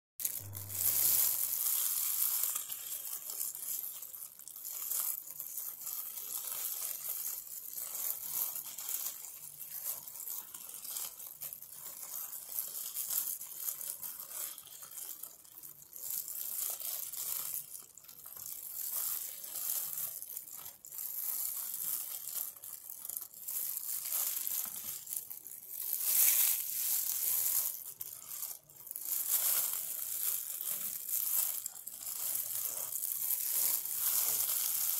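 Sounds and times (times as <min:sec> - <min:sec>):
leaves rustling and crinkling: 0:00.2 - 0:15.3, 0:18.0 - 0:34.9.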